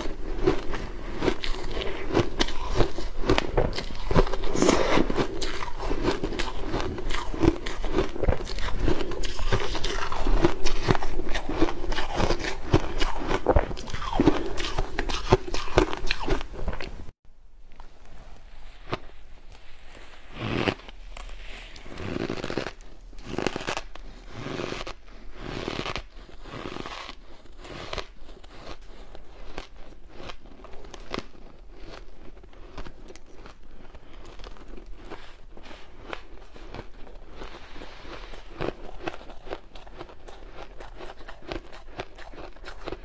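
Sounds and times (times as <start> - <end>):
shaved ice crunching in mouth: 0.0 - 17.0.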